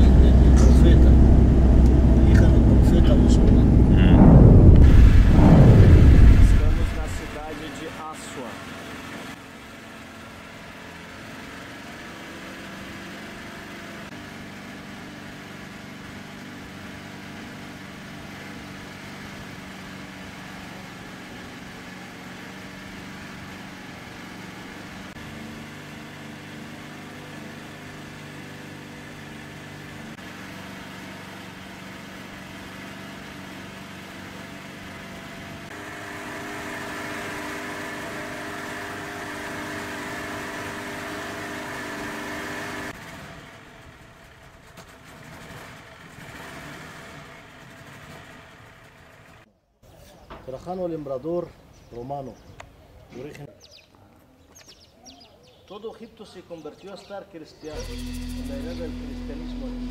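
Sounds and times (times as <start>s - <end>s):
small boat engine running: 0.0s - 43.0s, 57.7s - 59.9s.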